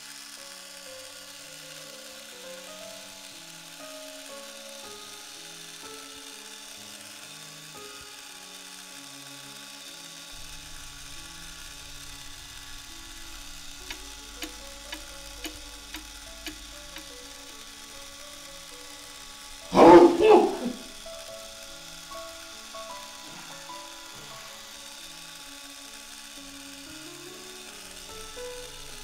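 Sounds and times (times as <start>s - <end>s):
electric corkscrew motor whirring: 0.0s - 29.0s
soft background music: 0.0s - 29.0s
clock ticking: 13.8s - 17.3s.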